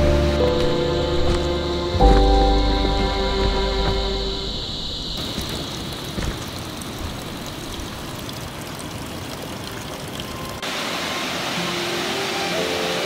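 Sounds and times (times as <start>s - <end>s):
rushing water: 0.0s - 13.0s
water trickling down rock: 5.2s - 10.7s
water drips: 5.2s - 10.8s.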